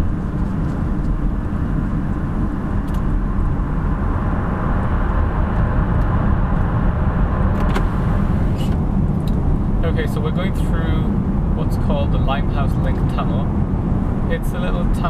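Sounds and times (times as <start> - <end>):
car engine and tyre rumble: 0.0 - 15.0
road hiss: 7.7 - 8.8.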